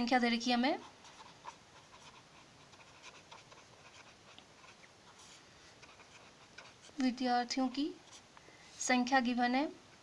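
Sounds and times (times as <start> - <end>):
pen scratching on paper: 0.7 - 7.0.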